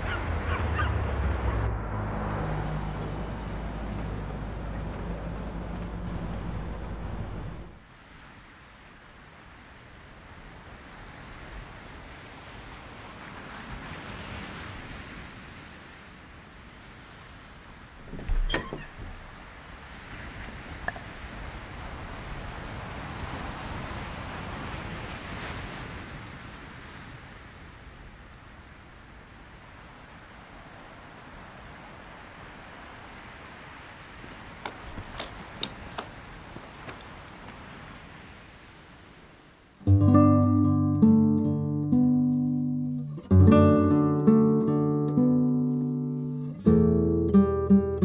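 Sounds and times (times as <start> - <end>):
crickets chirping: 0.0 - 7.8, 9.7 - 39.9
background hiss: 8.0 - 18.0.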